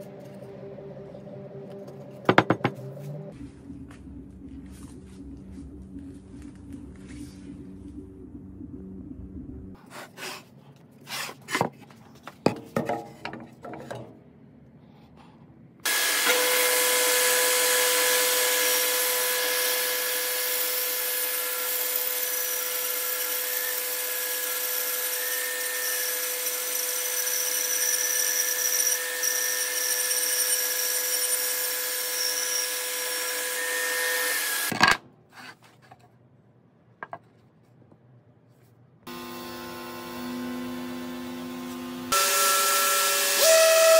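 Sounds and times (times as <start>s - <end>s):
power tool running on wood: 15.9s - 34.7s, 39.1s - 43.9s.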